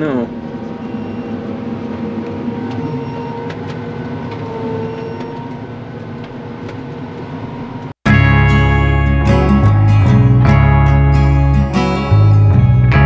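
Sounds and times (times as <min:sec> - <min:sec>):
crop sprayer machine drone: 0:00.0 - 0:06.7.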